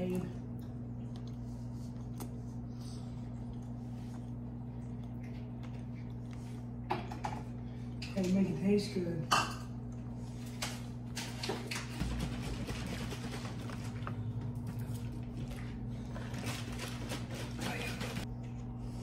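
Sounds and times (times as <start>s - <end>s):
chewing with small clicks: 0.0s - 8.3s
steady low hum: 0.0s - 19.0s.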